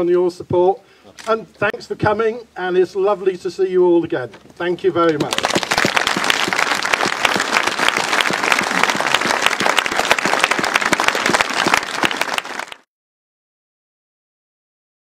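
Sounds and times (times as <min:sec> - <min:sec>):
crowd applauding: 0:05.2 - 0:12.9.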